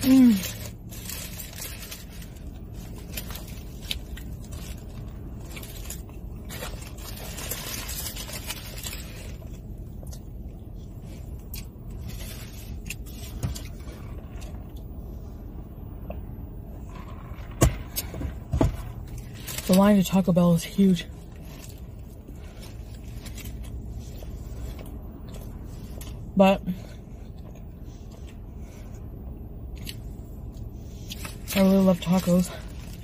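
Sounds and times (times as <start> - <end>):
paper wrapper rustling: 0.0 - 9.5
low rumble inside car: 0.0 - 33.0.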